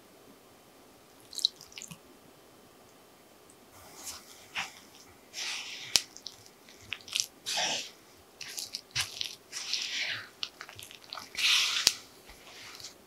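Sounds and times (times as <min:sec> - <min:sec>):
spatula scraping dough in bowl: 0:05.4 - 0:13.0.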